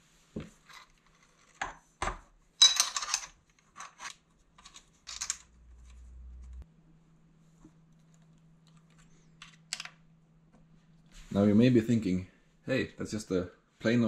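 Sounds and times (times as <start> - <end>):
metallic clinking and rattling: 2.6 - 5.9
low hum: 5.4 - 11.1.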